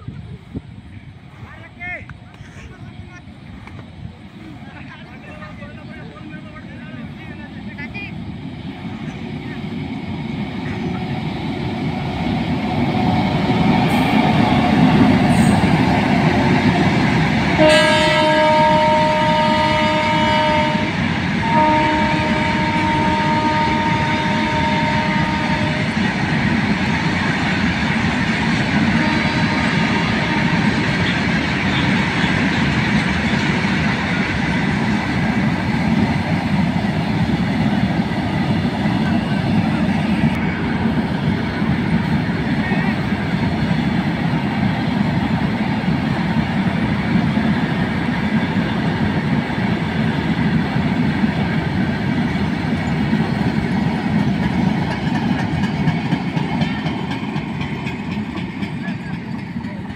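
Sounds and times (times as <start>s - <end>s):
electric locomotive passing: 0.0s - 59.9s
wheels rumbling on rail: 0.0s - 59.9s
multi-note train horn blasts: 17.6s - 26.0s, 28.9s - 32.0s.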